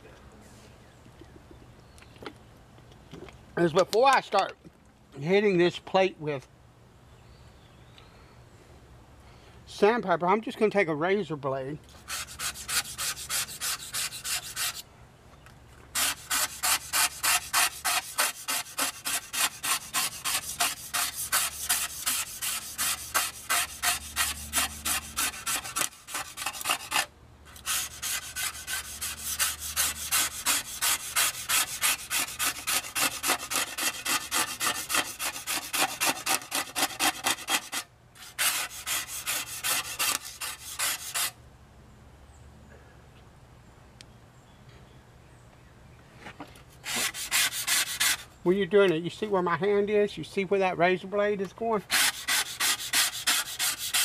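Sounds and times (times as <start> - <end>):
razor blade scraping rust: 12.0 - 14.8, 15.9 - 41.4, 46.8 - 48.3, 51.8 - 54.0.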